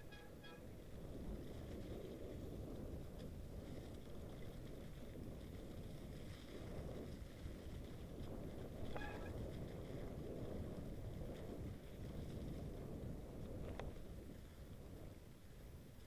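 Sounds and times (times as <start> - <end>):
short high squeak: 0.0 - 0.7, 8.9 - 9.3
tyres rumbling in snow: 0.0 - 15.2
wind on microphone: 0.0 - 16.0.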